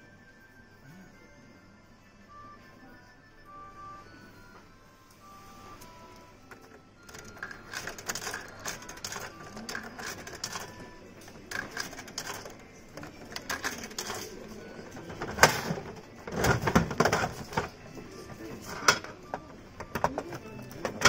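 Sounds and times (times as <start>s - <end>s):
coins clicking into coin slot: 6.5s - 17.8s, 18.4s - 21.0s.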